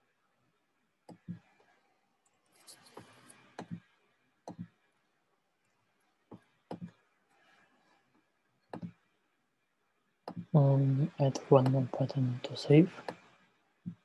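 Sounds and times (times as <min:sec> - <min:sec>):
soft rustle: 0:01.3 - 0:03.6.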